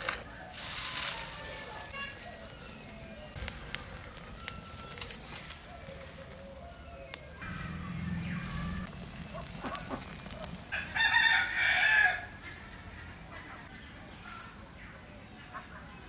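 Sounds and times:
rooster crowing: 10.7s - 12.4s.

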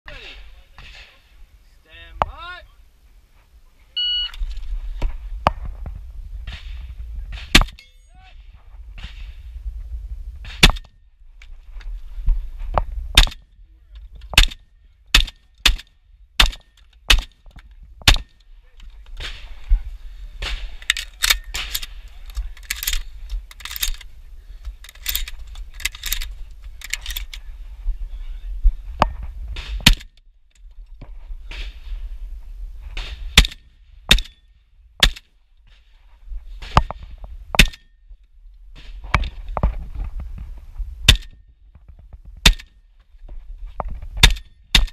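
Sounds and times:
shotgun shots: 6.4s - 7.8s, 10.4s - 10.9s, 13.2s - 13.4s, 14.4s - 17.4s, 18.0s - 18.4s, 20.4s - 22.0s, 29.6s - 30.1s, 33.0s - 34.4s, 35.0s - 35.3s, 37.6s - 37.8s, 41.1s - 41.4s, 42.4s - 42.7s, 44.2s - 44.9s
shell loading and handling noise: 15.2s - 19.7s, 20.4s - 27.5s.

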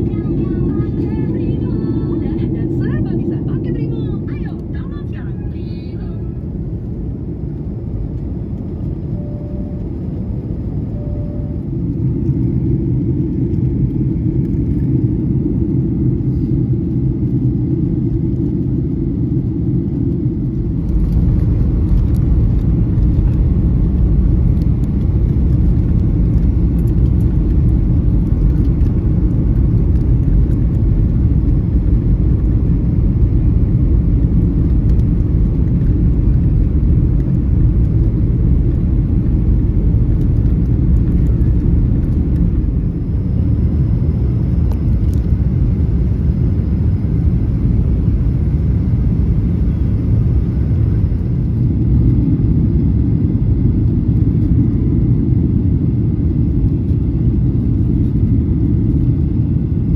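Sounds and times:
airplane cabin engine rumble: 0.0s - 59.9s.

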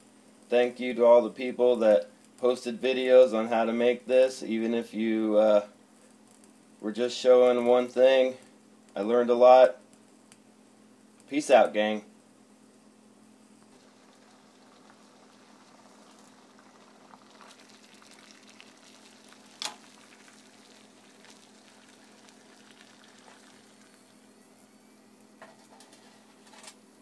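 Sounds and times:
alcohol stove flame hissing: 0.0s - 27.0s
low hum: 12.8s - 26.3s.

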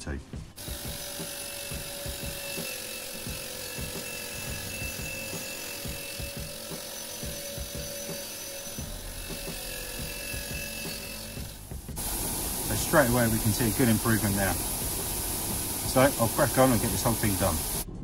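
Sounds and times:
wire brush scratching metal: 0.6s - 17.6s
bench grinder motor hum: 0.6s - 17.8s.

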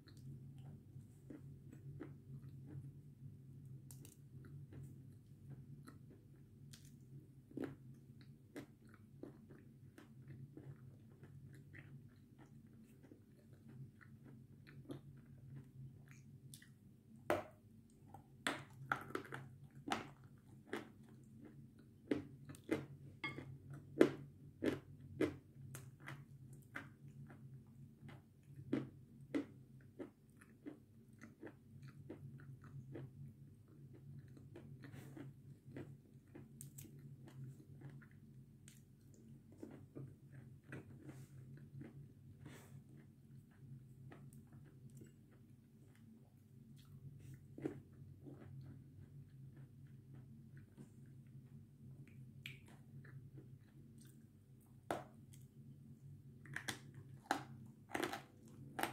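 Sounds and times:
person chewing crunchy food: 0.0s - 58.9s.

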